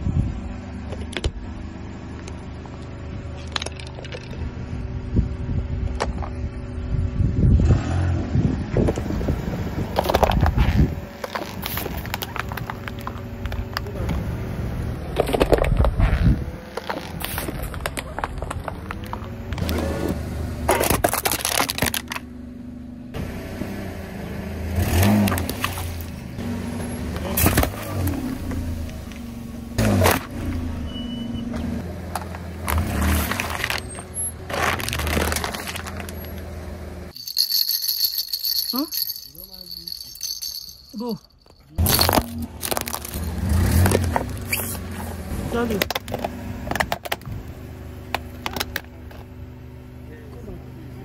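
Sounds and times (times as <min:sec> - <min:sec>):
tyres crushing objects: 0:32.7 - 0:36.3, 0:41.4 - 0:44.6
car engine running: 0:39.0 - 0:51.0.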